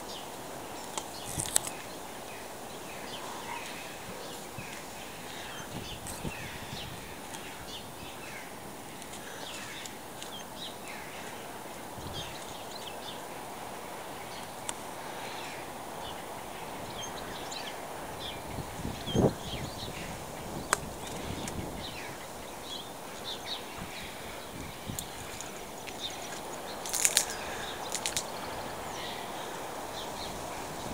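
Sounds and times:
birds chirping: 0.0 - 30.9
outdoor background hiss: 0.0 - 30.9.

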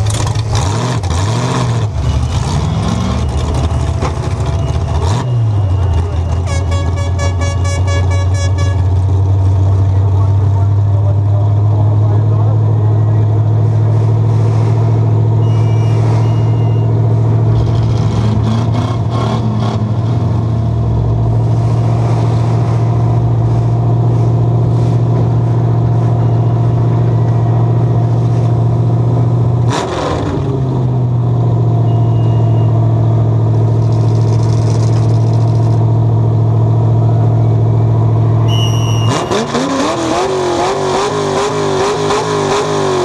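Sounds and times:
truck engine idling: 1.9 - 18.0, 31.1 - 39.1.

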